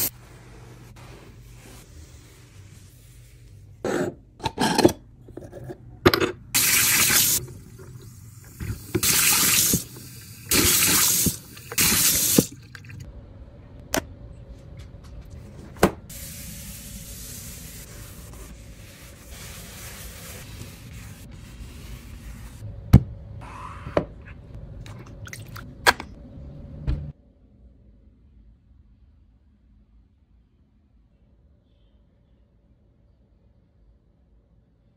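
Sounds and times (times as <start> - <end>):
paper towel wiping sink: 0.0 - 3.8, 16.1 - 22.6
water spraying: 6.6 - 12.6.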